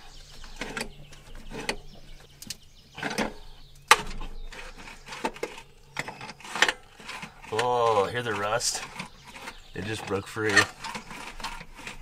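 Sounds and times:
seized pump grinding and creaking: 0.0s - 12.0s.

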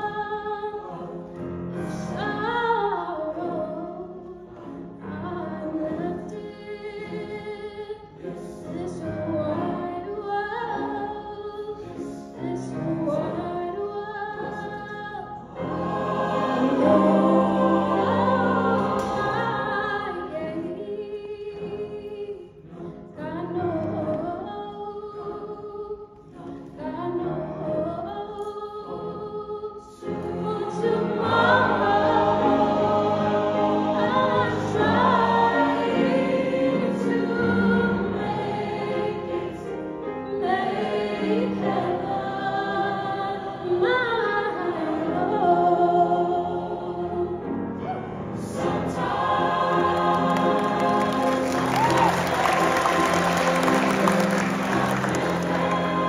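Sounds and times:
grand piano accompaniment: 0.0s - 56.0s
mixed choir singing: 0.0s - 56.0s.

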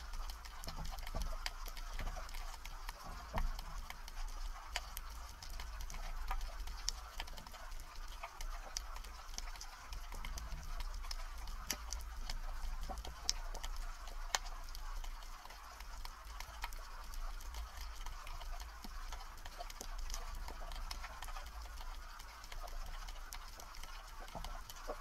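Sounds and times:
underwater clicks and crackles: 0.0s - 25.0s.

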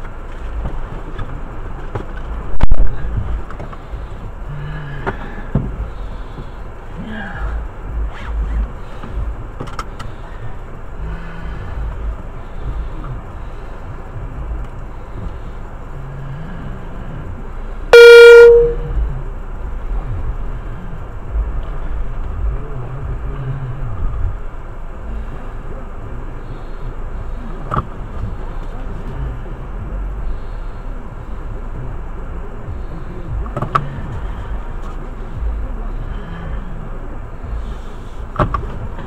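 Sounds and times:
car engine rumble inside cabin: 0.0s - 39.0s
car horn toot: 17.9s - 19.0s.

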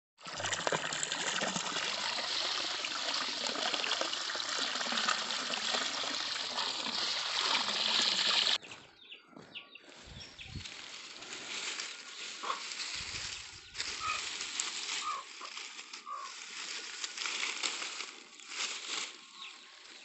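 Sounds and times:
running water splashing over plants: 0.2s - 8.6s.

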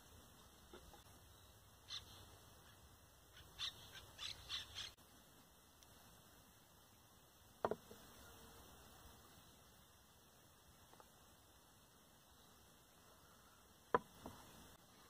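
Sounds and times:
bird giving harsh calls: 1.9s - 5.0s.

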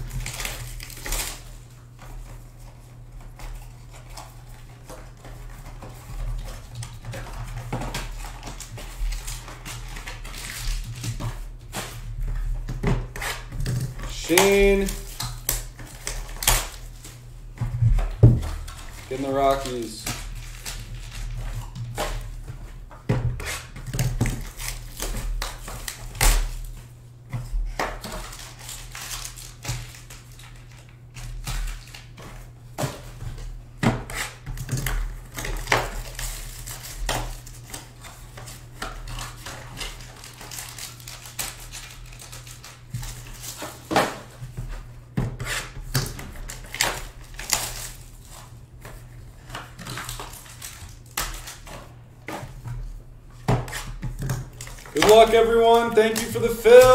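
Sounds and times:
hands handling cardboard boxes: 31.4s - 56.9s.

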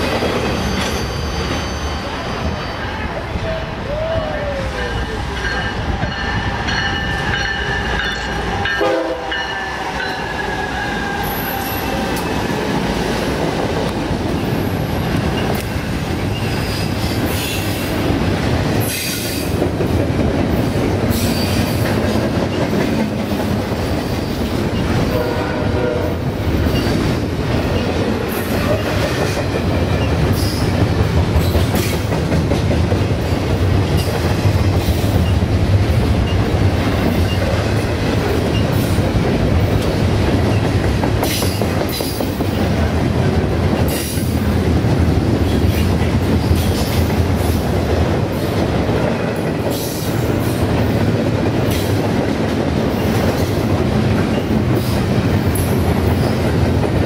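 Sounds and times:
rail clacks: 0.0s - 57.0s
train wheels rumbling on rails: 0.0s - 57.0s
wheel squeals: 0.4s - 2.7s
locomotive horn: 8.7s - 9.6s, 25.1s - 26.3s.

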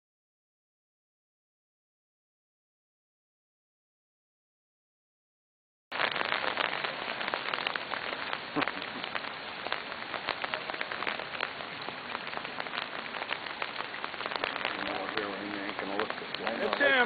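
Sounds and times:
rain drops pattering: 5.9s - 17.0s.

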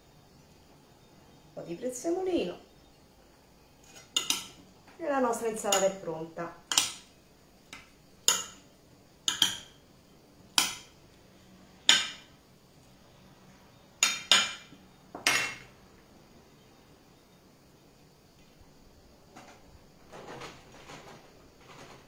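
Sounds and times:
cutlery clinking on plate: 3.8s - 4.6s, 9.3s - 9.7s.

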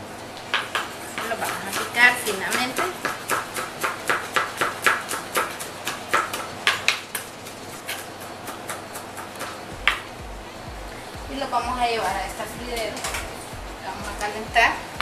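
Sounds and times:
knife chopping on plastic board: 0.5s - 7.3s.

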